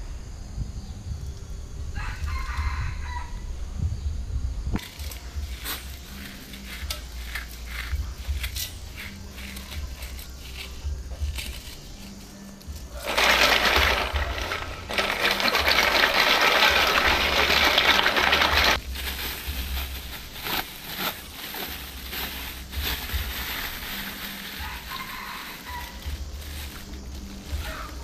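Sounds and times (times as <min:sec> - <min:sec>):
snail shells grinding together: 0:12.8 - 0:18.8
plastic bag crinkling: 0:12.9 - 0:28.0.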